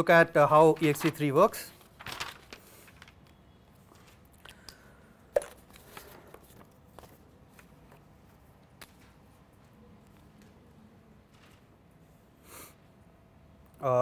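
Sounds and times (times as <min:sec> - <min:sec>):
paper rustling: 0:00.4 - 0:04.4, 0:05.6 - 0:10.6, 0:11.2 - 0:11.9.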